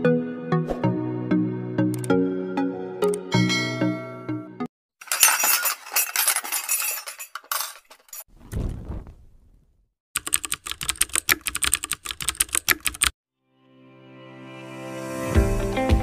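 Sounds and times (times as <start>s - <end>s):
short low whoosh: 8.4s - 9.8s
typewriter key clicks: 10.2s - 13.1s.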